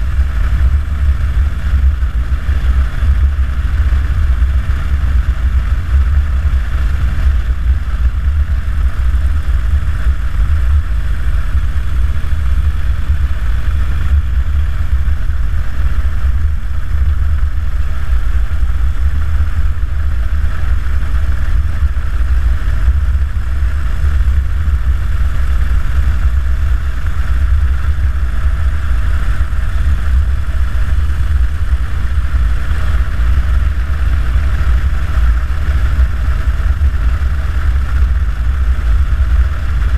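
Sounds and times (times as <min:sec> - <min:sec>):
wind rumble on microphone: 0:00.0 - 0:39.9.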